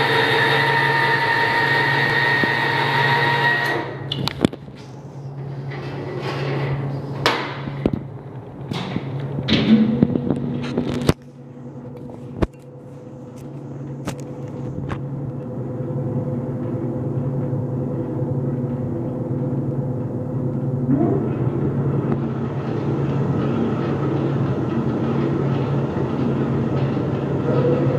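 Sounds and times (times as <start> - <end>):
mixer motor humming and rattling: 0.0 - 27.9.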